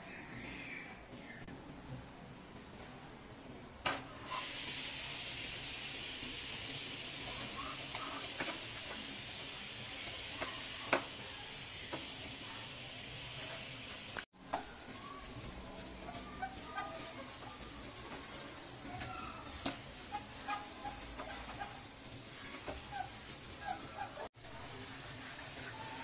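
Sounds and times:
hissing sizzle: 0:02.2 - 0:26.0
metal spatula scraping a pan: 0:16.0 - 0:24.3.

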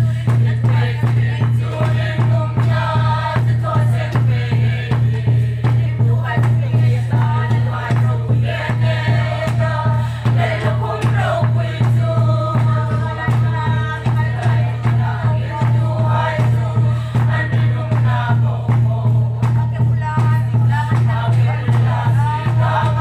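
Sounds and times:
congregation singing a hymn: 0:00.0 - 0:23.0
steady drum beat: 0:00.0 - 0:23.0.

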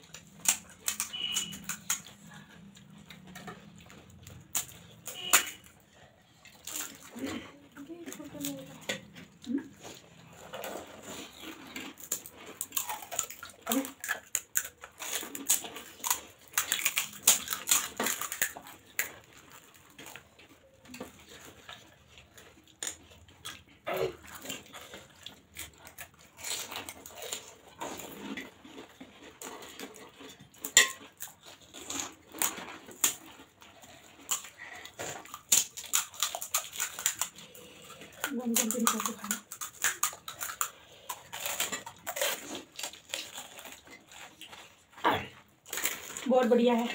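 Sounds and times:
crisp shells cracking: 0:00.0 - 0:02.2, 0:10.5 - 0:20.3, 0:24.1 - 0:44.8, 0:45.6 - 0:46.3
spoons clinking on metal bowls: 0:30.7 - 0:31.0.

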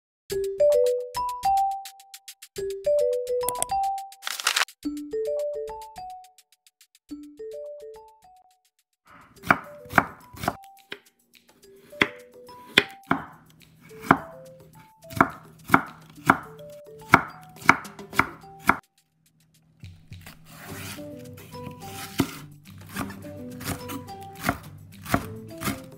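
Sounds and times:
knife chopping on wooden board: 0:09.1 - 0:11.1, 0:11.8 - 0:18.8, 0:19.9 - 0:25.9.

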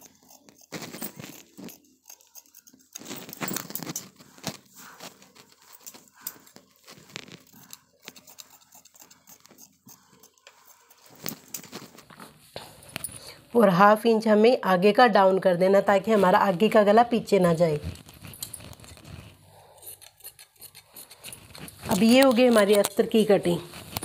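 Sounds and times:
scissors snipping fabric: 0:00.0 - 0:11.7, 0:17.7 - 0:24.0.

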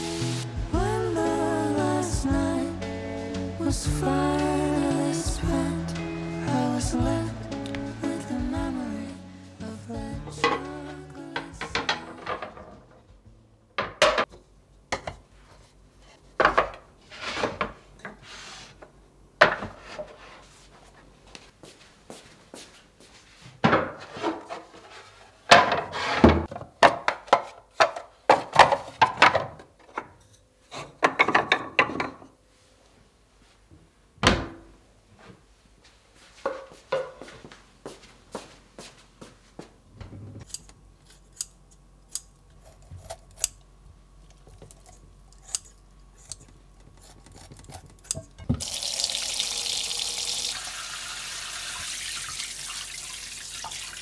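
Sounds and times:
tap water running into sink: 0:48.5 - 0:54.0.

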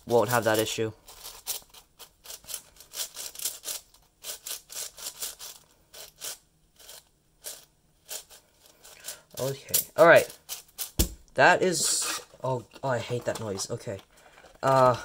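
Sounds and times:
speed cube plastic layers clicking: 0:00.4 - 0:09.6.

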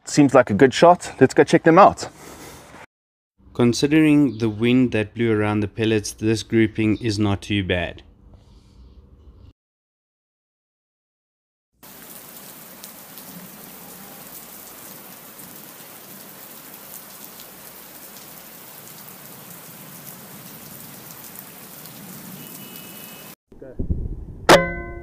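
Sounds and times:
rain drop ticks: 0:11.8 - 0:22.9
rain falling: 0:11.8 - 0:23.4.

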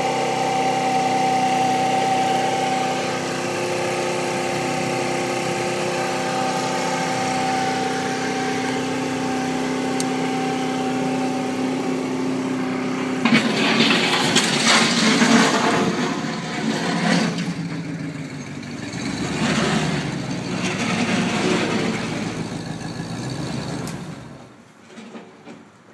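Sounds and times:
scooter engine idling and revving: 0:00.0 - 0:24.6.

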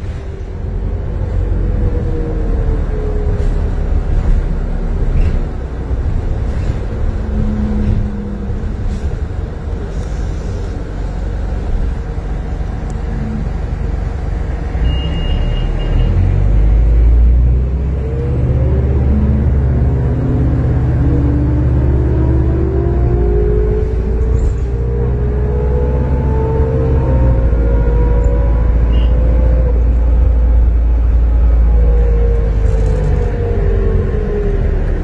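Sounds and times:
bus engine running: 0:00.0 - 0:35.0
road and tyre noise: 0:00.0 - 0:35.0
short high beep: 0:14.8 - 0:16.2.

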